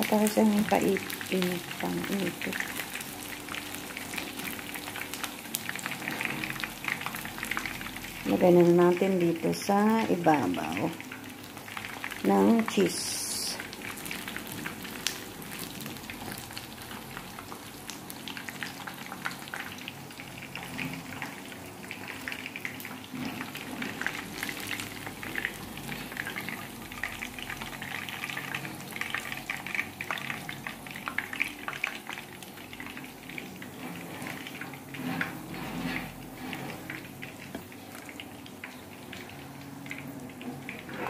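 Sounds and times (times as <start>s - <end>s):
chicken sizzling in hot oil: 0.0s - 41.0s
spatula stirring in pan: 33.6s - 38.1s.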